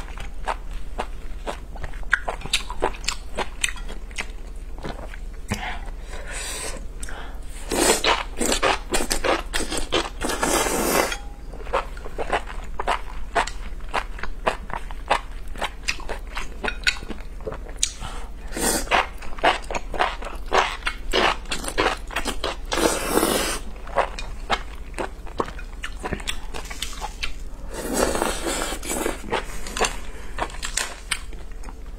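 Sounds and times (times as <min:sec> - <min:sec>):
wet chewing and mouth clicks: 0:00.1 - 0:05.6, 0:11.7 - 0:18.0
slurping: 0:22.7 - 0:23.7.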